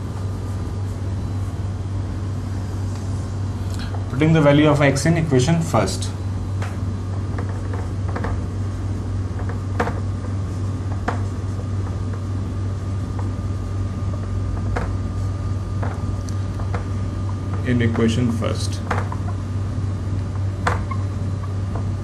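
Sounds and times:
steady low hum: 0:00.0 - 0:22.0
marker squeaking on whiteboard: 0:20.7 - 0:21.6.

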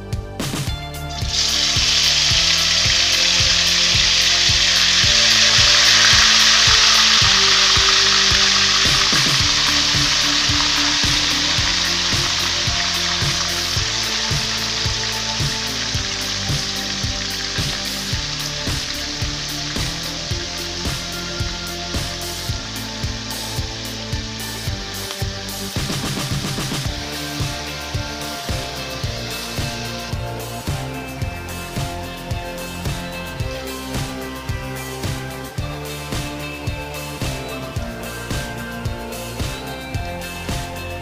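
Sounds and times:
background music with beat: 0:00.0 - 0:41.0
chicken sizzling in hot oil: 0:01.2 - 0:30.8.

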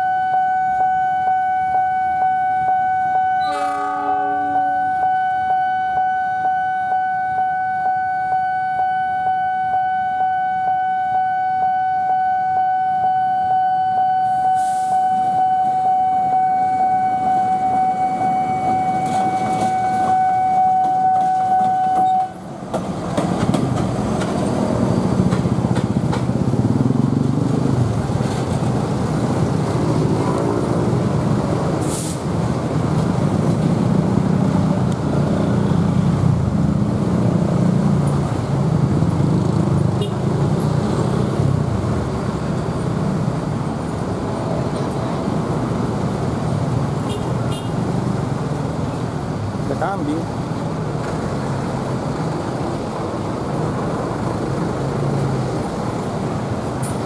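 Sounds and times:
diesel locomotive engine rumbling: 0:00.0 - 0:09.8, 0:10.5 - 0:57.0
steady high tone: 0:00.0 - 0:22.4.

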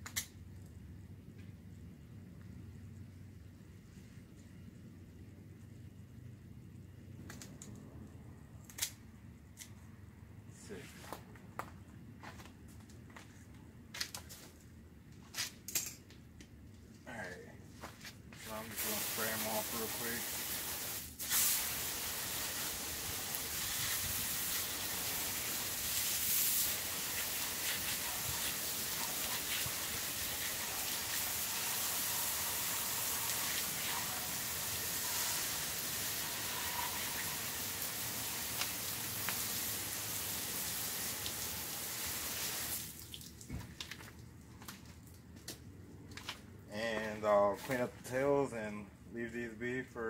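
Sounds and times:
hose nozzle spraying water: 0:18.5 - 0:43.2.

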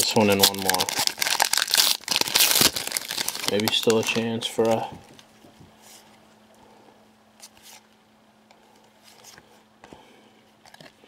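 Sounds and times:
faint steady hum: 0:00.0 - 0:11.0
cards sliding and flipping: 0:07.4 - 0:07.9.

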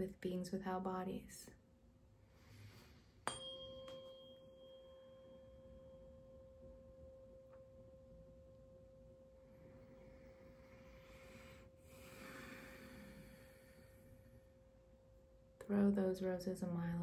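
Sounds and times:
tuning fork ringing: 0:03.2 - 0:10.6.

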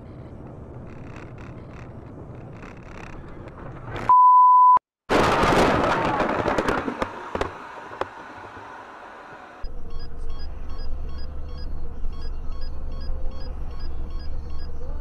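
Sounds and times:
road noise: 0:00.0 - 0:04.2, 0:05.3 - 0:15.0
vehicle crash with clattering: 0:05.1 - 0:08.6.

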